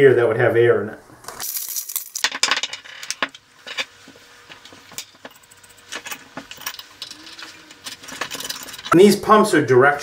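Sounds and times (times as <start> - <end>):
metal bolts clinking: 4.9 - 9.0.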